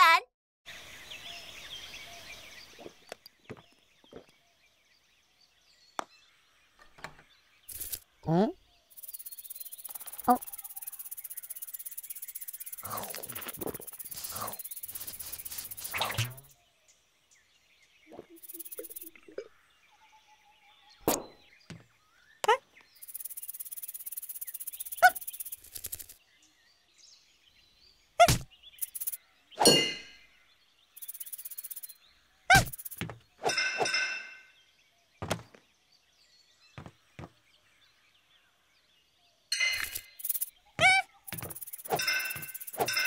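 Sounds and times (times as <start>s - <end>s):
high fluttering buzz: 9.0s - 16.5s
cartoon knocks clinks and dings: 29.6s - 30.2s, 39.5s - 43.0s.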